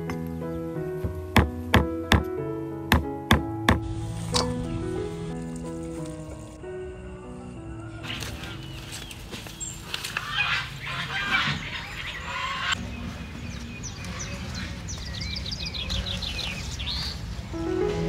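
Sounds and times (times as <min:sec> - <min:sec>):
birds calling: 0:04.4 - 0:17.9.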